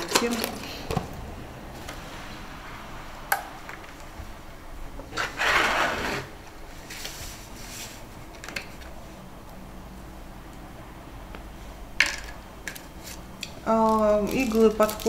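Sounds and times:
packaging tearing and rustling: 0:13.8 - 0:15.0.

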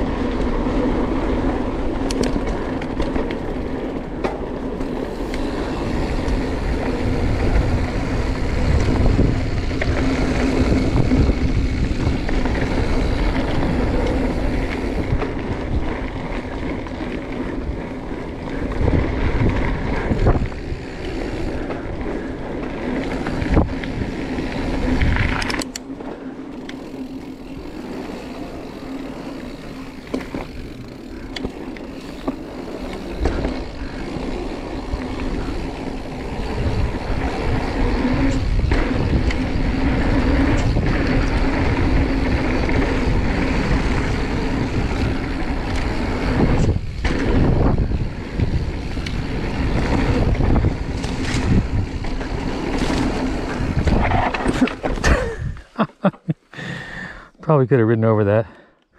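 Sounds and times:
bike tyres rumbling on dirt: 0:00.0 - 0:56.9
wind on camera: 0:04.8 - 0:25.8, 0:32.2 - 0:55.7.

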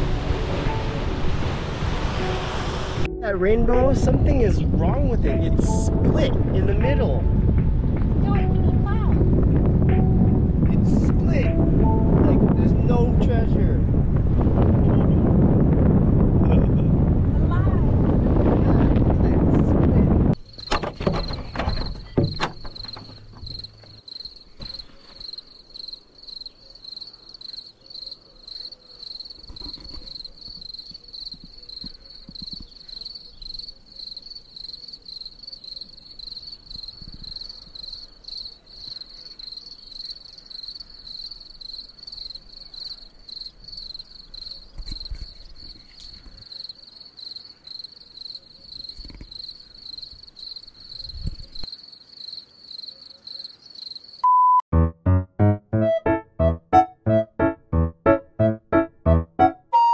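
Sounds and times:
crickets chirping: 0:20.4 - 0:54.3
low knocks: 0:20.6 - 0:23.9.

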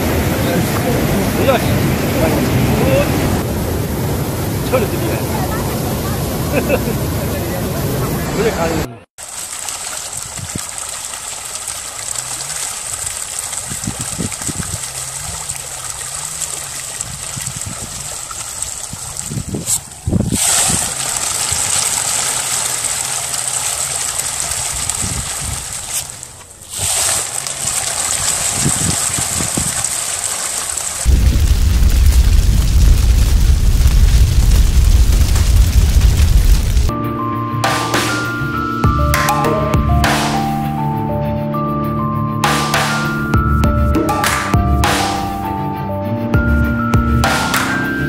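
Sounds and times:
fish thrashing and splashing water: 0:09.2 - 0:36.9.

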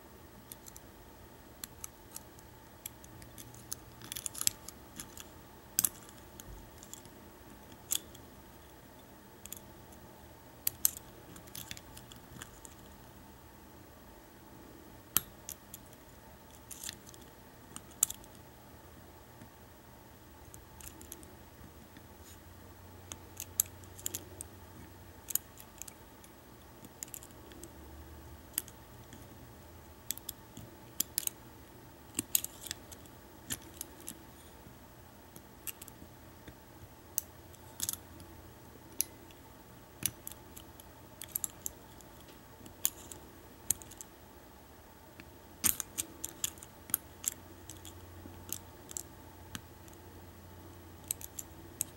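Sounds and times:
lock pick clicking and scratching: 0:01.6 - 0:08.2, 0:16.5 - 0:18.4.

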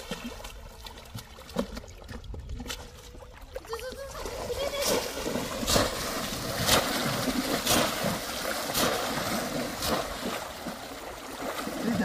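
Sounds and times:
water sloshing: 0:00.0 - 0:12.0
basket splashing into water: 0:04.2 - 0:12.0.

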